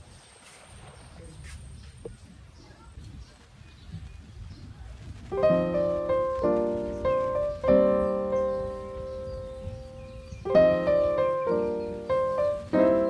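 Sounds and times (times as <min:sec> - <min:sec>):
low rumbling noise: 0:04.7 - 0:13.0
slow piano chords: 0:05.3 - 0:13.0.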